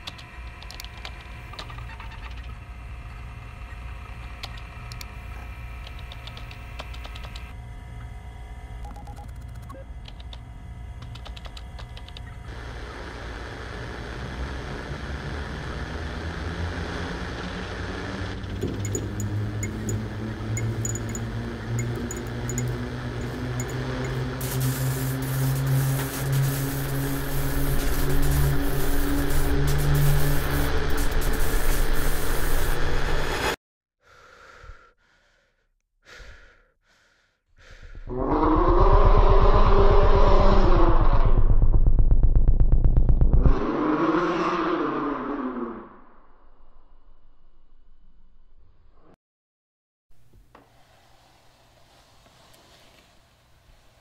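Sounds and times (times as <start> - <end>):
loud dense noise with low hum: 0.0 - 33.6
low drone: 12.3 - 33.6, 37.6 - 48.9
short heavy breaths: 34.0 - 38.1.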